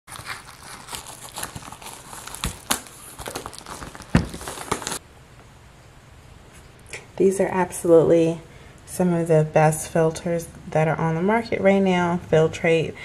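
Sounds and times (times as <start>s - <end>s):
air filter rustling and crinkling: 0.0s - 5.0s.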